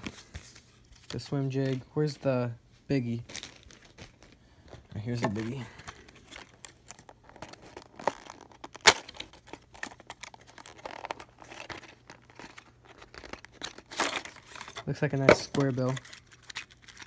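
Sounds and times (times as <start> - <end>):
plastic packaging crinkling: 3.1 - 17.0.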